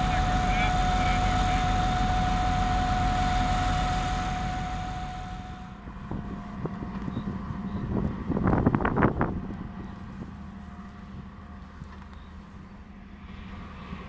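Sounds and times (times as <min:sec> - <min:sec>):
diesel locomotive engines running: 0:00.0 - 0:14.0
wind rumble on microphone: 0:05.9 - 0:12.0.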